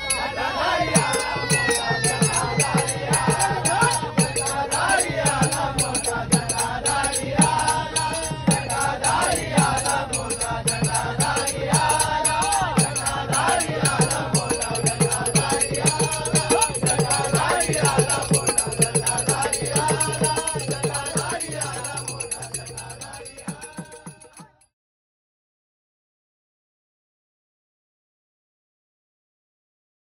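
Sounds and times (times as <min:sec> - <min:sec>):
men singing together: 0:00.0 - 0:24.6
jingling percussion: 0:00.0 - 0:24.7
hand drums beating: 0:01.0 - 0:24.6.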